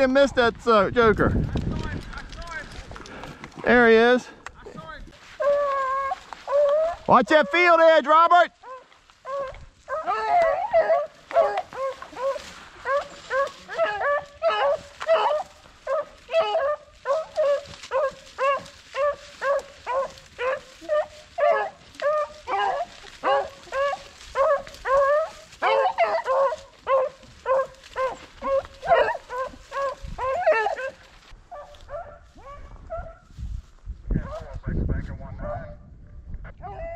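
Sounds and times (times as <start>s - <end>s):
dogs baying: 5.4s - 7.6s, 8.6s - 33.3s, 36.6s - 36.9s.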